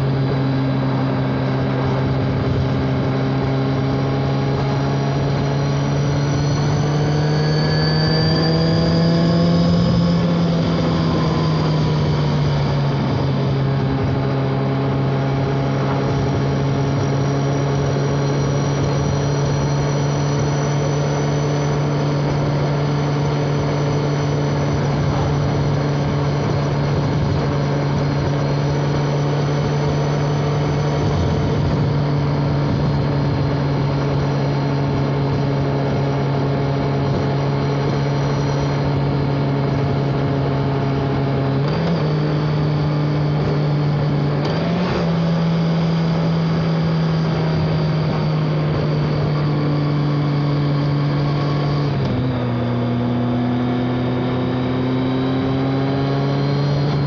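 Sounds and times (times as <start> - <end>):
motorcycle engine running: 0.0 - 57.0.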